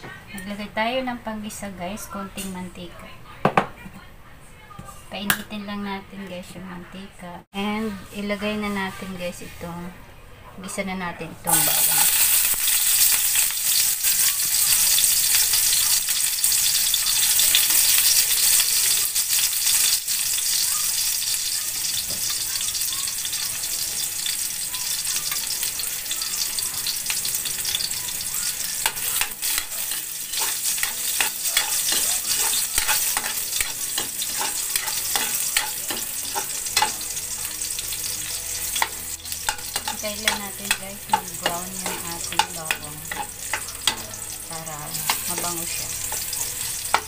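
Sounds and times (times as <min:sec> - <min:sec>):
garlic sizzling in hot oil: 0:11.5 - 0:47.0
metal spoon stirring in wok: 0:11.6 - 0:20.6, 0:26.4 - 0:47.0.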